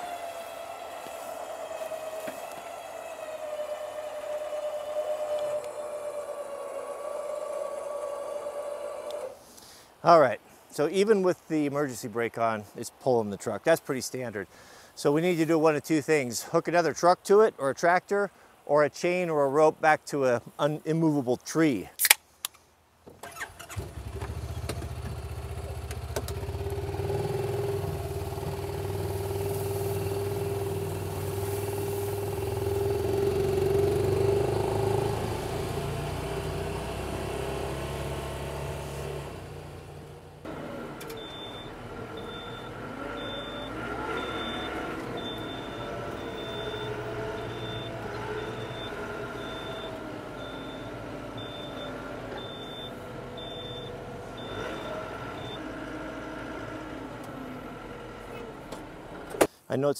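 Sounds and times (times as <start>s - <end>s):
tractor engine running: 0.0s - 9.4s, 23.2s - 59.5s
utility vehicle engine running: 0.0s - 9.4s, 23.3s - 59.5s
high reverse beeper: 41.0s - 55.6s.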